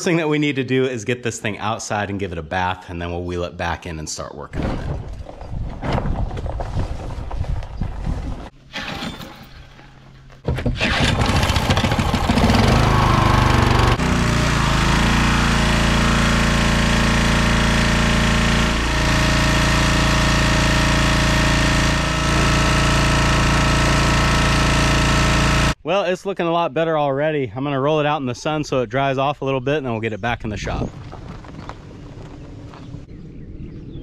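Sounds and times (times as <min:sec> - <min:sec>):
pressure washer engine running: 0:10.9 - 0:25.8.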